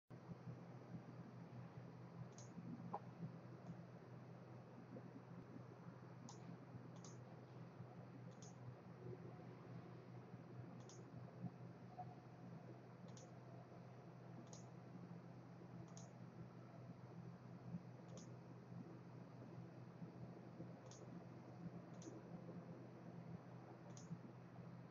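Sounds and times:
low steady hum: 0.1 - 24.9
faint short clicks: 6.3 - 7.2, 8.3 - 8.6, 10.8 - 11.1, 13.1 - 13.3, 15.9 - 16.1.

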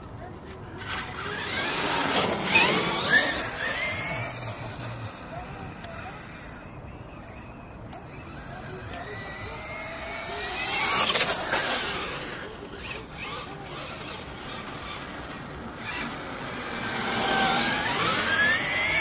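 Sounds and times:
toy truck electric motor whining: 1.2 - 4.7, 8.2 - 19.0.

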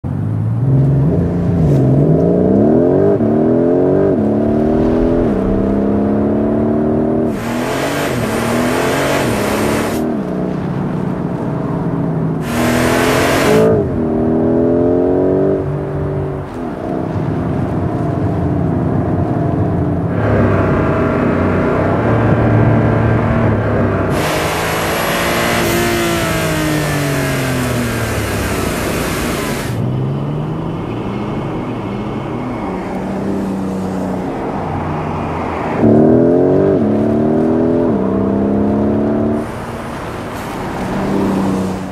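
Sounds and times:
sports car engine accelerating: 0.1 - 41.9
loud rushing hiss: 4.8 - 10.0, 12.4 - 13.7, 24.1 - 29.8.

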